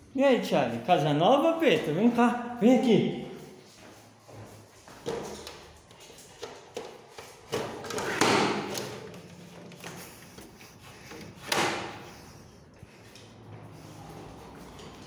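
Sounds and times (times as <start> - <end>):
noisy scrape: 7.9 - 15.0.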